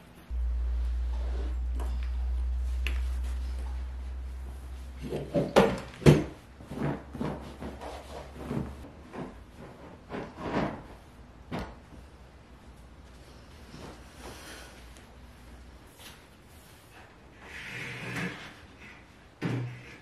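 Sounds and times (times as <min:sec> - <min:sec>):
steady low hum: 0:00.0 - 0:17.4
chair knocks and thumps: 0:05.0 - 0:11.9.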